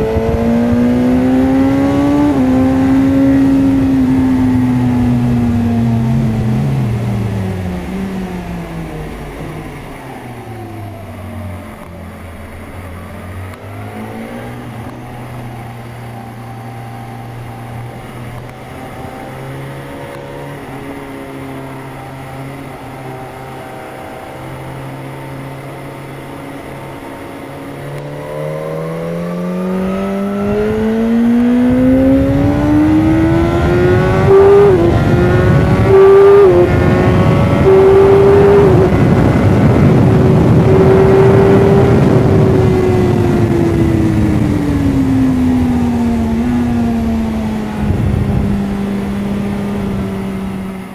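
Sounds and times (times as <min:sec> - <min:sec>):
wind rush on microphone: 0:00.0 - 0:09.9, 0:29.6 - 0:50.9
motorcycle engine revving: 0:00.0 - 0:50.9.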